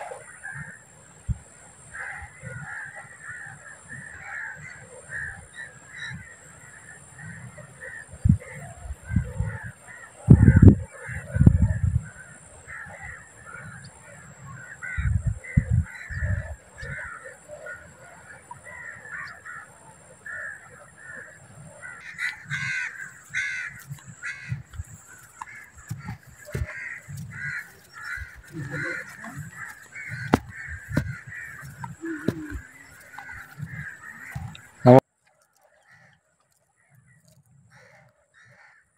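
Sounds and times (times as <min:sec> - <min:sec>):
flock of birds cawing: 0:01.9 - 0:35.0, 0:37.1 - 0:38.9
thumps on microphone: 0:25.8 - 0:27.5, 0:29.6 - 0:35.0.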